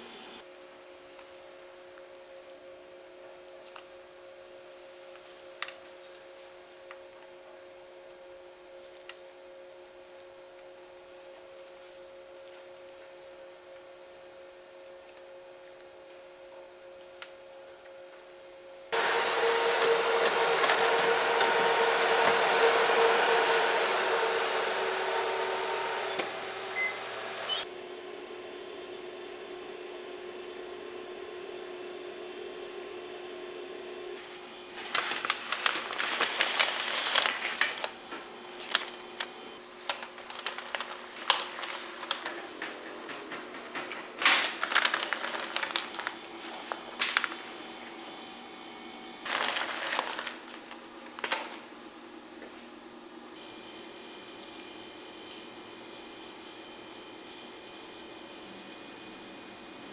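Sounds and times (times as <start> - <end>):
oven fan running: 18.9 - 59.9
motor-driven whoosh with hum: 19.0 - 27.7.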